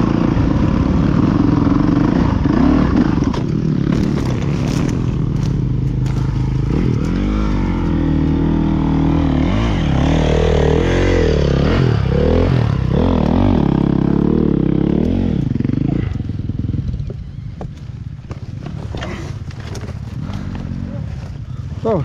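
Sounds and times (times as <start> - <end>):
dirt bike engine revving: 0.0 - 17.6.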